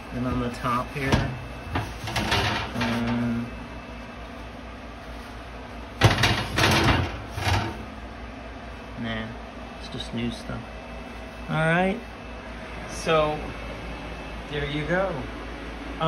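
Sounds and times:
paper towel scraping oven rack: 0.0 - 3.5, 4.4 - 8.0.

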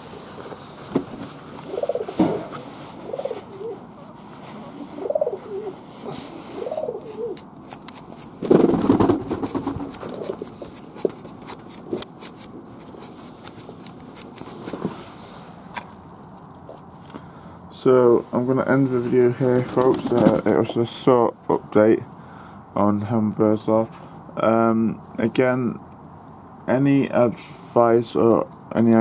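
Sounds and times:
pigeons cooing: 1.5 - 7.5, 8.6 - 10.8.

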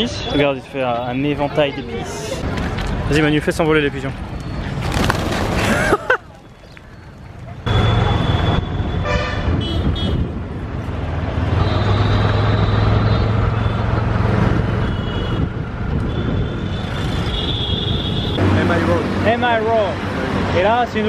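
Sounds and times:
car horns honking: 7.7 - 10.3, 14.7 - 18.4
vehicle engine hum: 9.6 - 16.2.

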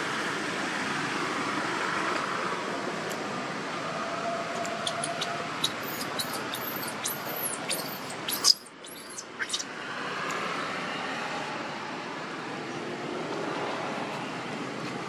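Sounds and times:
baby monkey squealing: 4.7 - 9.7.

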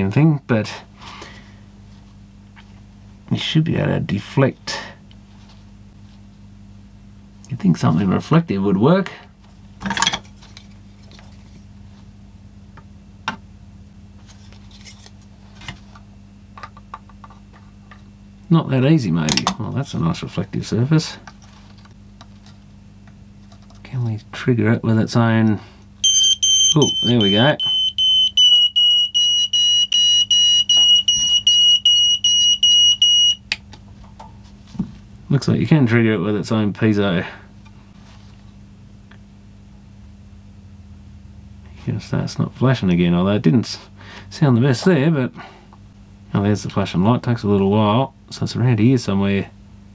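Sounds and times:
steady low hum: 0.0 - 49.9
smoke alarm beeping: 26.0 - 33.4.

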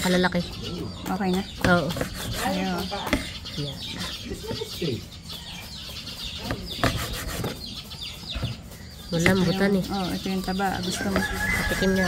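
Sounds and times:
birds calling: 0.0 - 12.0
cleaver chopping on wooden board: 6.4 - 7.6, 11.0 - 12.0.

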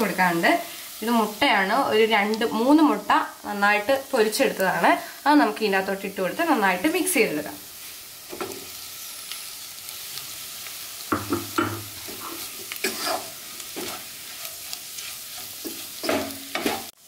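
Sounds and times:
onions sizzling while frying: 0.0 - 17.0
wooden spatula scraping pot: 11.4 - 17.0.

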